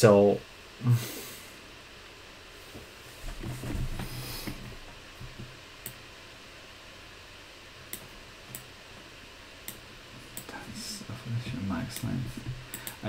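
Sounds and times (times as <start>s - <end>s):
computer mouse clicks: 7.9s - 8.7s, 12.7s - 13.0s.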